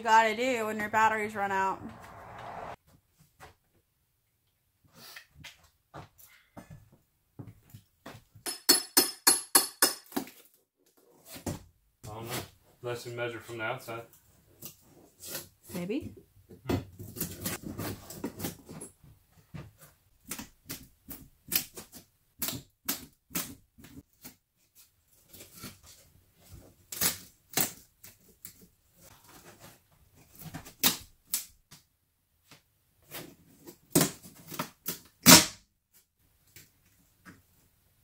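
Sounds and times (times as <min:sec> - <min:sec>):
scraping rumble: 0:01.2 - 0:02.8
pry bar and hammer on wood: 0:08.5 - 0:10.2.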